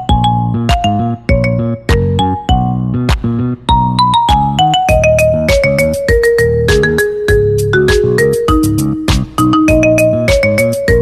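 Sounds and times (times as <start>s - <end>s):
bell-like ringtone melody over a beat: 0.0s - 2.8s, 3.7s - 11.0s.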